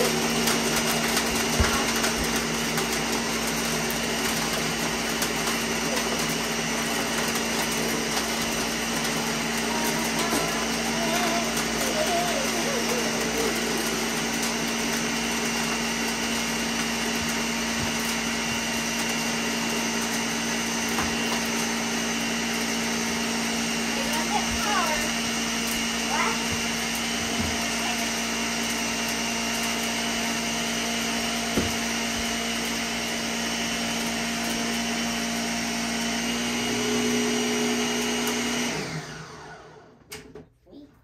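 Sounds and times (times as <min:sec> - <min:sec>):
blender running: 0:00.0 - 0:40.4.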